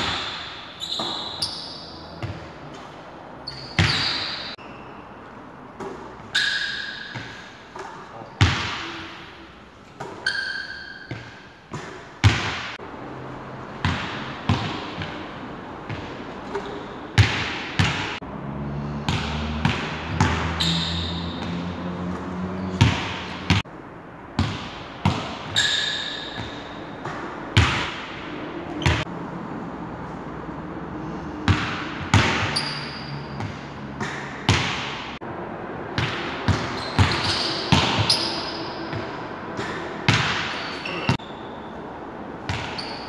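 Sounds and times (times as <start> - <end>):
sneakers squeaking: 0.0 - 12.8, 13.7 - 18.2, 18.9 - 23.7, 24.4 - 29.1, 31.4 - 35.2, 36.0 - 43.0
basketball bouncing on wooden floor: 13.8 - 15.2, 15.8 - 18.2, 22.8 - 23.6, 24.4 - 25.6, 26.3 - 28.0, 36.0 - 41.2.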